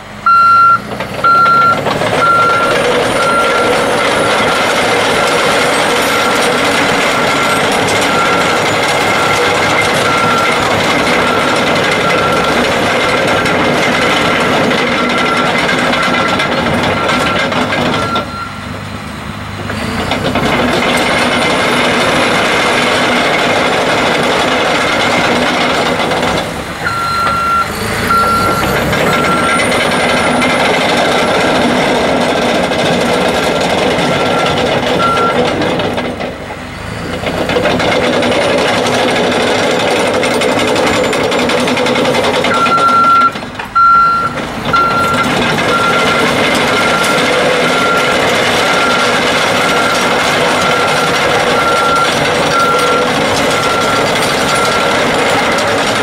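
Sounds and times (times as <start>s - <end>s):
diesel engine running: 0.0s - 56.0s
reversing alarm beeps: 0.3s - 5.5s, 6.1s - 12.6s, 14.3s - 18.6s, 26.8s - 30.4s, 33.5s - 35.4s, 42.5s - 55.2s.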